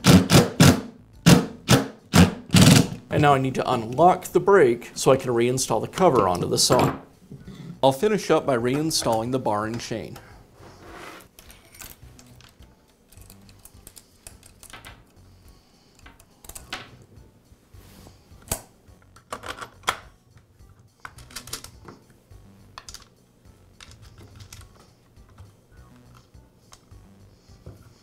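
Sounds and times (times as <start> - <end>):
metal chain links clinking: 11.4 - 12.4.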